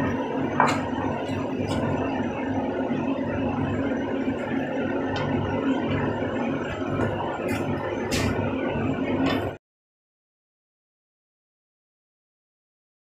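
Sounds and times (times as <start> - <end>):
low mechanical hum: 0.0 - 9.6.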